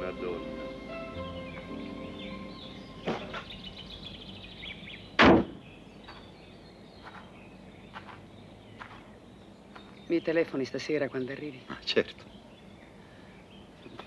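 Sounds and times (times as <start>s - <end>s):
car boot lid slamming: 3.0s - 3.5s.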